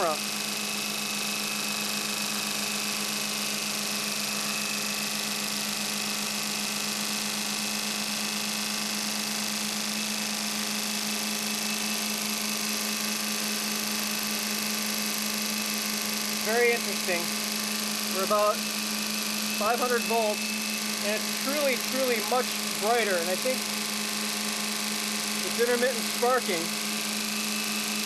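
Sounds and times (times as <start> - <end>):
machine hum with hiss: 0.0 - 28.0.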